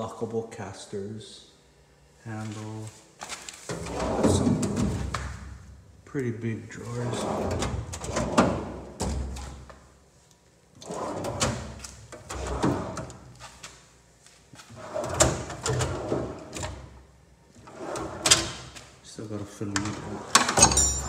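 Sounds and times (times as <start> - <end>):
steel drawers sliding: 3.6 - 5.2, 6.9 - 9.7, 10.8 - 13.3, 14.7 - 16.9, 17.6 - 18.8, 19.8 - 21.0.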